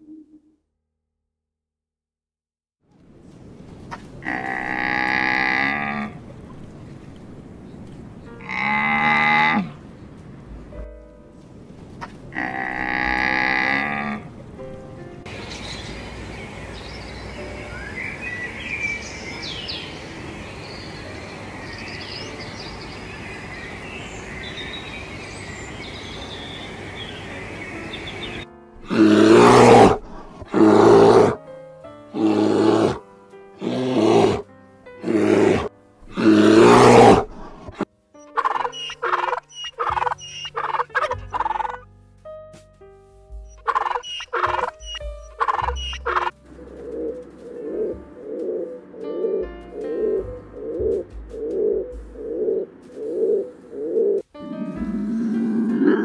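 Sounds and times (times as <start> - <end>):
loud drawn-out animal calls: 3.9 - 6.3, 8.4 - 9.8, 28.8 - 31.4, 32.2 - 33.0, 33.6 - 34.4, 35.0 - 41.8, 43.6 - 48.8
birds chirping: 3.9 - 31.4, 35.0 - 41.8, 43.3 - 56.0
steady hiss: 14.5 - 28.2
short animal calls: 38.4 - 41.8, 43.5 - 46.3.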